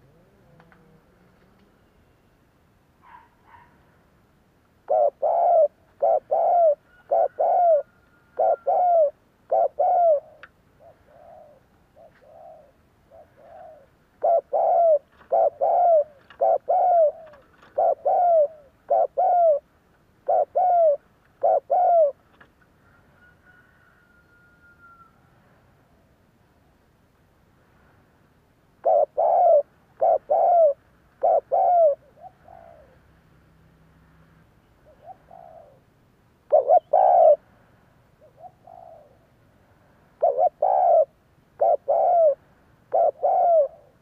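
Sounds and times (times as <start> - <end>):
dove cooing: 0.0 - 1.8, 4.8 - 22.2, 28.8 - 33.1, 34.8 - 35.9, 36.5 - 37.5, 38.2 - 39.3, 40.2 - 44.0.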